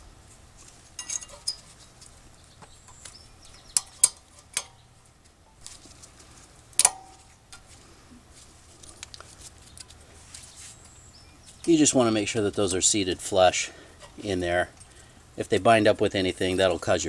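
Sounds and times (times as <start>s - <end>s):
metal clips clicking into place: 2.9s - 4.8s, 6.8s - 7.6s.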